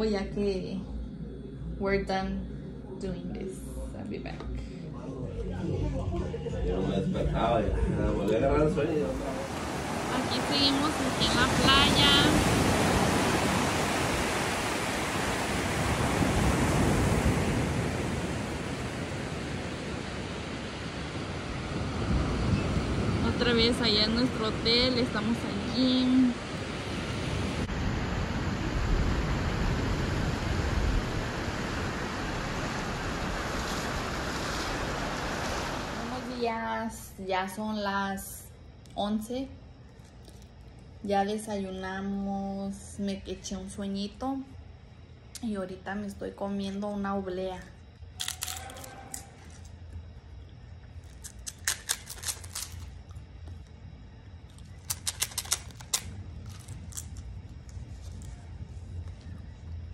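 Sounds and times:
wind buffeting microphone: 7.7s - 36.3s
surf washing on beach: 8.5s - 36.6s
wafer crunching when bitten: 48.2s - 49.3s.

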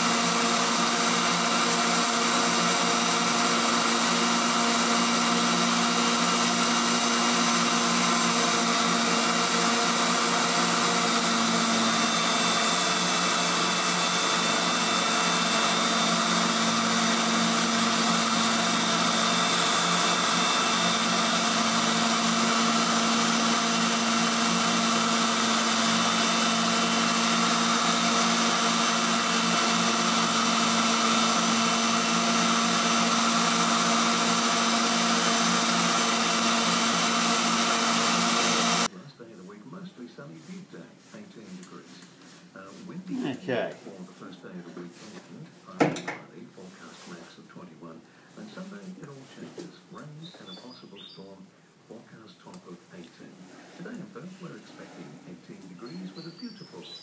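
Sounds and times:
grinder motor whine: 0.0s - 38.9s
grinding wheel on metal: 0.0s - 38.9s.

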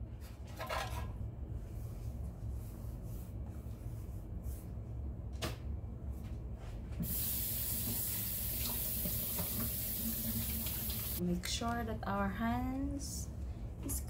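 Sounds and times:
kitchen tap turned on: 7.0s - 11.2s
water running into sink: 7.0s - 11.2s.

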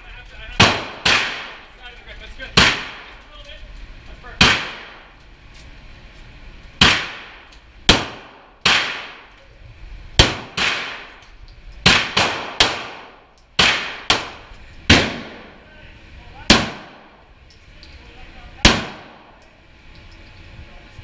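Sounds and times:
pistol shots: 0.6s - 1.7s, 2.6s - 3.1s, 4.4s - 5.0s, 6.8s - 9.3s, 10.2s - 11.2s, 11.8s - 15.6s, 16.4s - 17.2s, 18.6s - 19.4s.

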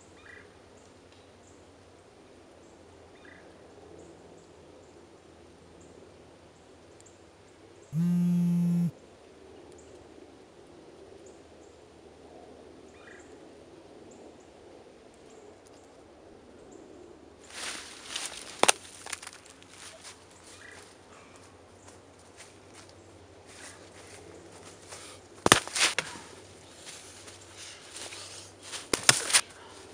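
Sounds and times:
mobile phone vibrating: 8.0s - 8.9s.

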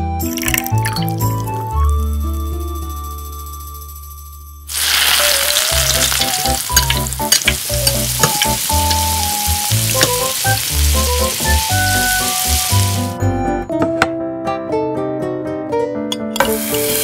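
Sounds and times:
shrimp sizzling in hot oil: 4.7s - 13.2s, 16.4s - 17.0s.

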